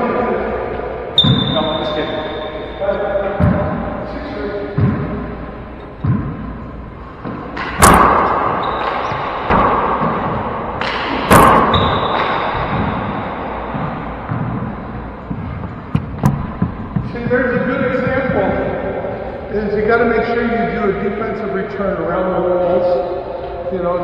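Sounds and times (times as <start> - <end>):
ball smacks echoing: 7.2 - 18.9.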